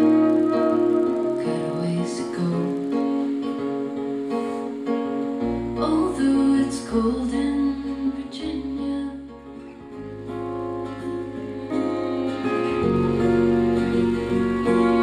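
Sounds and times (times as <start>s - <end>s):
low bass notes: 0.0s - 3.0s, 5.4s - 15.0s
woman singing: 0.0s - 3.3s, 5.8s - 9.5s
strummed acoustic guitar: 0.0s - 15.0s.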